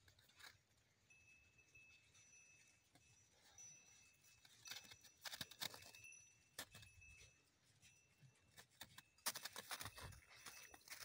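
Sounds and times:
dog crunching snow: 9.2s - 11.0s.

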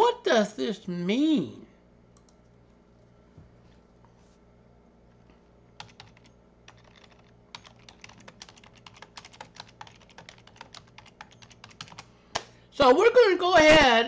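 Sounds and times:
faint low hum: 0.0s - 14.0s
keyboard typing clicks: 5.8s - 12.5s.

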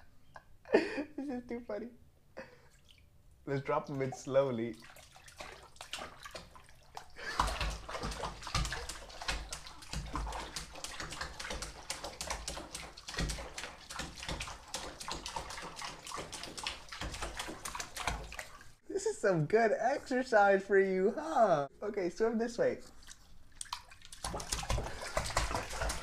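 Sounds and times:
dog splashing in water: 3.7s - 18.8s, 22.9s - 26.0s.

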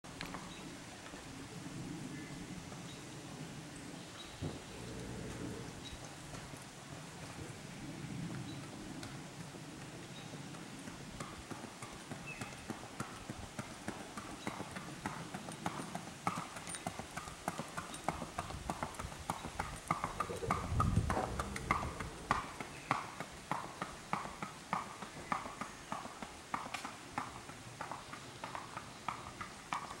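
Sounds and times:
horse hooves on paved road: 0.1s - 30.0s
low rumble: 20.6s - 22.6s.

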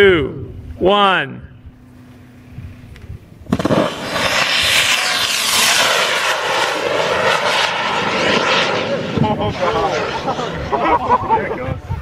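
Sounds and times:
rocket motors roaring: 1.5s - 12.0s.

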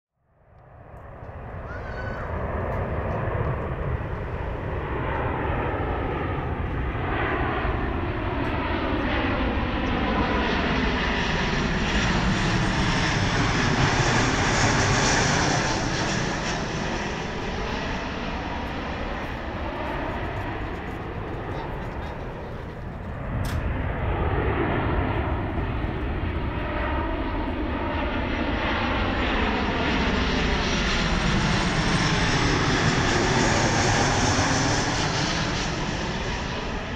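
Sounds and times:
jet airliner passing overhead: 0.3s - 36.9s.

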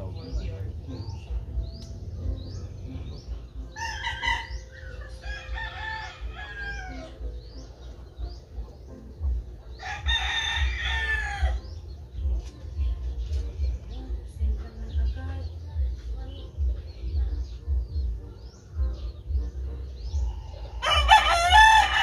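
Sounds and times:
small birds chirping: 0.0s - 22.0s
roosters crowing: 3.7s - 7.6s, 9.7s - 11.9s, 20.0s - 22.0s.

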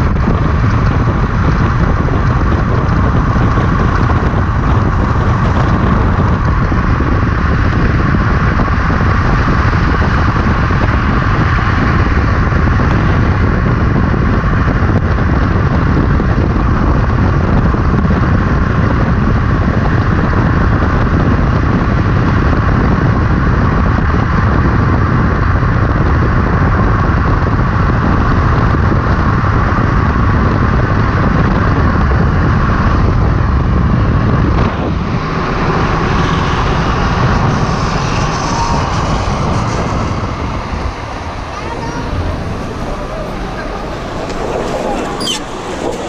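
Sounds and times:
wheels rolling on asphalt: 0.0s - 46.0s
wind rushing over microphone: 0.0s - 46.0s.

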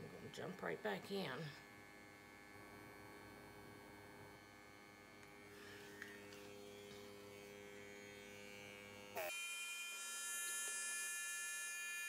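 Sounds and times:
compressor electric hum: 0.0s - 9.3s.

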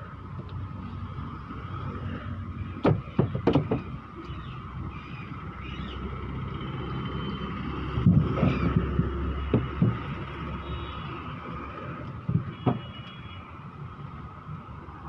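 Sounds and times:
coconuts knocking together: 2.8s - 3.9s, 9.5s - 10.2s.

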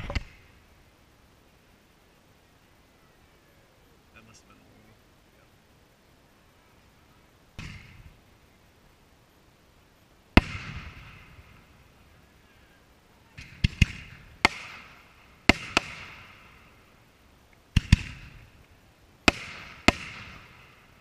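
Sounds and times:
fireworks bangs with echo: 7.6s - 8.1s, 10.4s - 11.7s, 13.4s - 16.9s, 17.7s - 18.6s, 19.2s - 21.0s.

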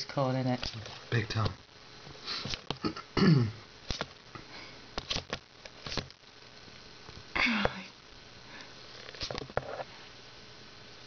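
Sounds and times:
person sniffing: 2.2s - 2.6s.

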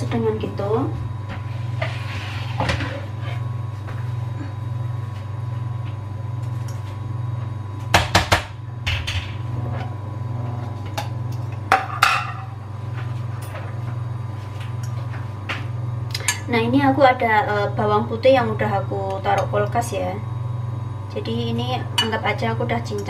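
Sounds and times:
steady low hum: 0.0s - 23.0s
dishes knocking and clattering: 11.7s - 12.5s.

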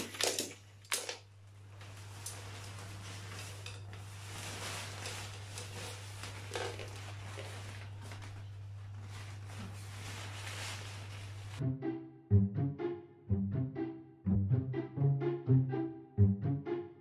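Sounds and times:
synthetic fabric rustling: 1.5s - 11.6s.

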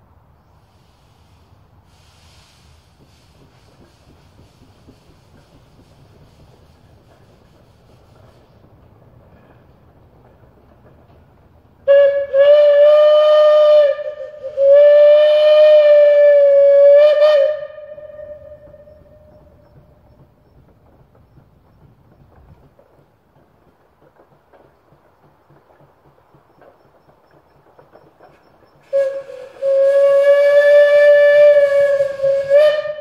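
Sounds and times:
steam whistle blasts: 11.8s - 19.6s, 28.8s - 33.0s.

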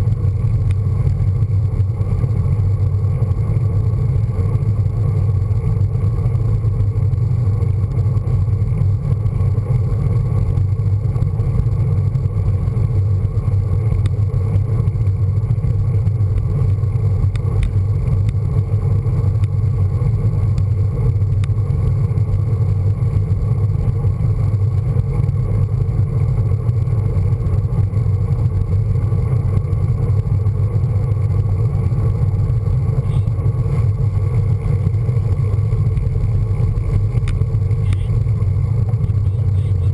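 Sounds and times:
road rumble: 0.0s - 39.9s.

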